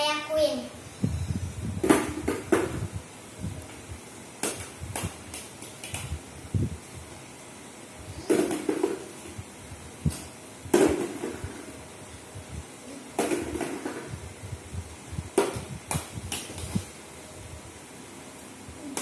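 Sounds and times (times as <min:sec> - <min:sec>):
balls knocking plastic wastebasket: 0:01.8 - 0:02.9, 0:08.2 - 0:09.2, 0:10.1 - 0:11.7, 0:13.2 - 0:14.2, 0:15.3 - 0:16.8
plastic balls bouncing on tiles: 0:08.3 - 0:09.3, 0:10.8 - 0:11.7, 0:13.1 - 0:14.2.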